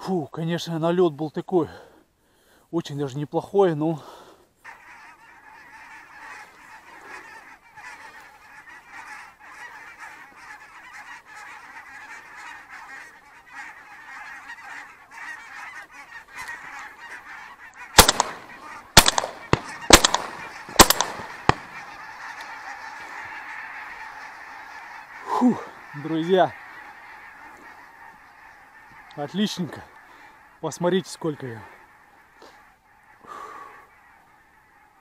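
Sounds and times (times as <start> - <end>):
geese honking: 4.6 - 35.0
shotgun shots: 18.0 - 21.8.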